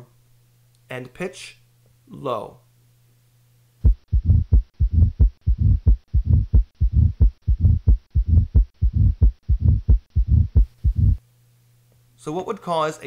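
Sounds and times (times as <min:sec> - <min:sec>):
heartbeat: 0:03.8 - 0:11.2
low-pitched heart murmur rumble: 0:03.8 - 0:11.2.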